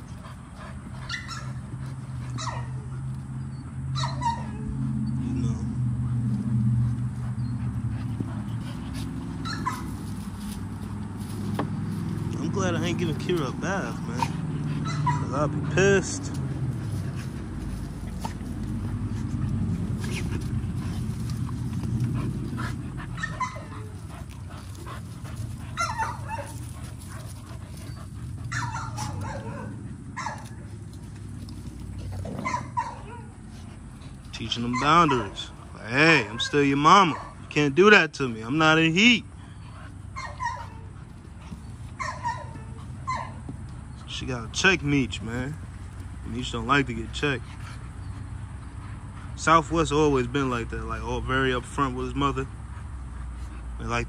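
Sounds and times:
dogs play-fighting: 0.0s - 54.0s
dog whimpering: 23.0s - 24.0s.

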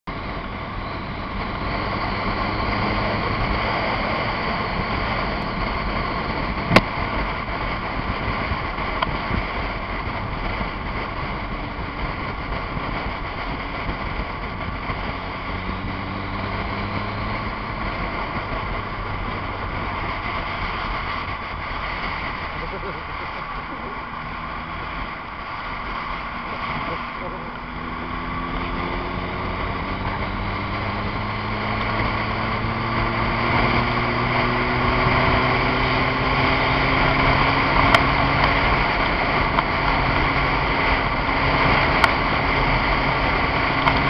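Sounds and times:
motorcycle engine cruising: 0.0s - 44.0s
wind and road noise: 0.0s - 44.0s.

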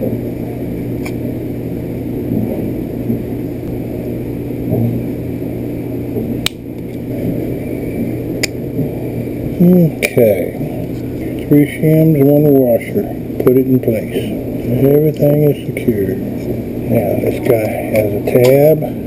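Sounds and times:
low rumbling: 0.0s - 19.0s.

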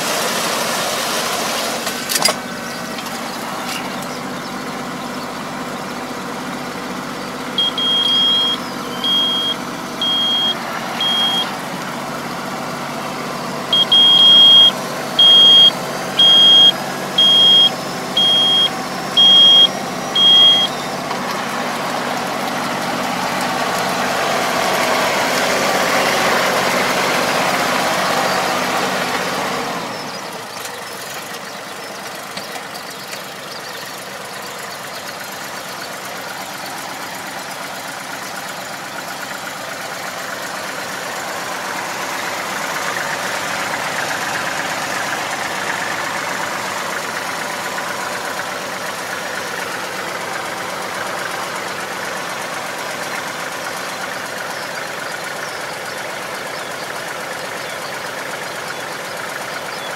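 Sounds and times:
tractor engine running: 0.0s - 59.9s
high electronic warning beeps: 7.6s - 11.5s, 13.7s - 20.8s.

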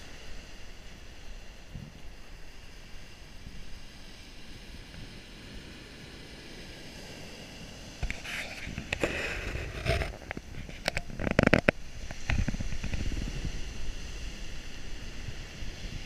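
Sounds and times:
surf washing over pebble beach: 0.0s - 16.0s
wind buffeting microphone: 0.0s - 16.0s
crackling clicks: 8.0s - 13.2s.

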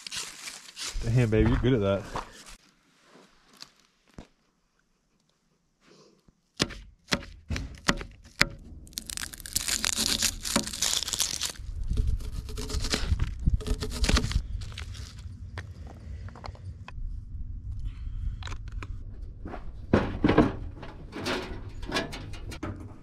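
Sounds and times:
onion skin crackling: 0.0s - 1.1s, 8.8s - 15.3s
sharp knocks: 6.6s - 9.0s
low rumble: 8.4s - 22.6s.

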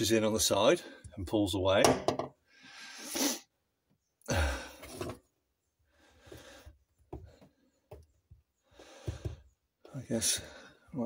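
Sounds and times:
man sighing: 4.2s - 4.8s
soft breathing: 5.9s - 8.0s, 8.6s - 9.6s.

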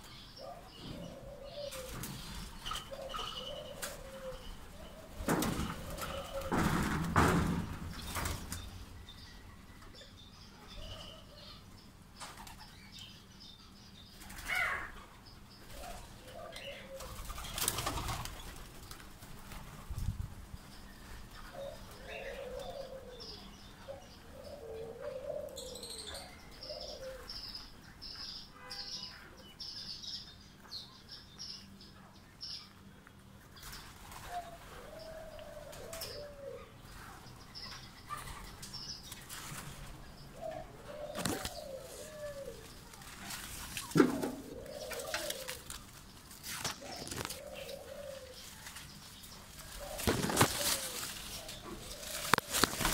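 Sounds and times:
doves cooing: 0.0s - 13.0s, 14.2s - 19.9s, 20.7s - 28.0s, 33.8s - 52.9s
birds chirping: 0.0s - 52.9s
wings flapping: 17.0s - 19.8s, 41.1s - 47.4s, 49.6s - 52.9s.

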